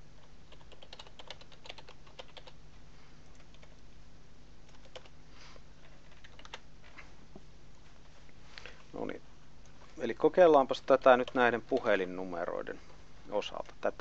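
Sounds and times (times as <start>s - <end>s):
typing on keyboard: 0.2s - 2.6s, 3.3s - 3.8s, 4.6s - 5.2s, 5.8s - 6.6s.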